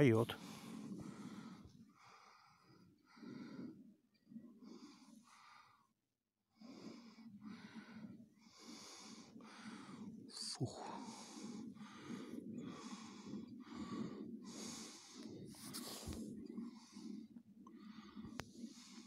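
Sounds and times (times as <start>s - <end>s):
person breathing hard: 0.3s - 3.9s, 6.6s - 19.0s.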